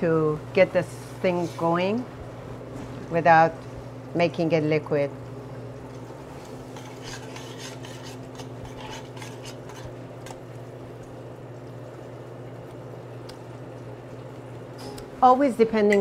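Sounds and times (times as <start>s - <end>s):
steady low hum: 0.0s - 16.0s
metal spoon scraping a pot: 6.7s - 10.4s.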